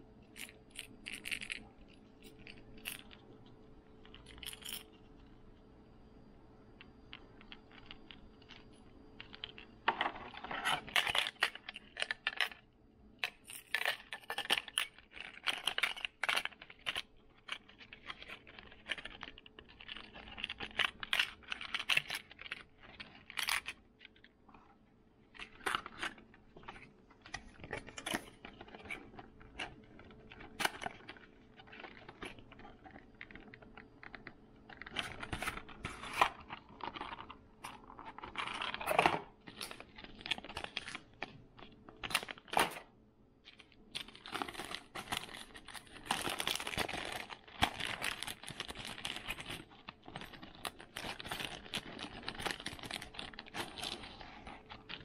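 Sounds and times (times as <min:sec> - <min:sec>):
plastic packaging crinkling and tearing: 0:13.2 - 0:24.4, 0:25.3 - 0:42.8, 0:43.4 - 0:55.0.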